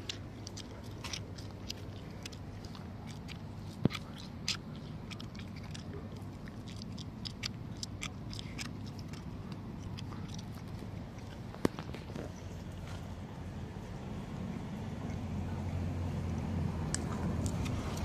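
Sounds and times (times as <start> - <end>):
cat crunching dry food: 0.0 - 13.0.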